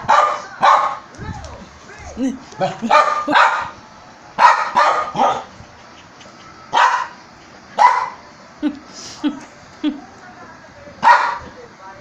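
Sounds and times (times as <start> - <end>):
small dog barking: 0.0 - 1.0, 2.6 - 3.8, 4.4 - 5.5, 6.7 - 7.2, 7.8 - 8.2, 11.0 - 11.4.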